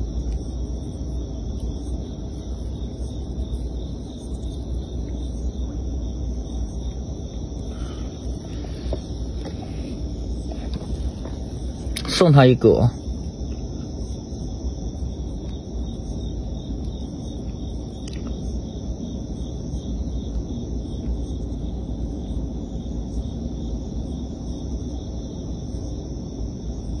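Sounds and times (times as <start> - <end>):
low rumble: 0.0 - 12.1
crickets chirring: 0.0 - 27.0.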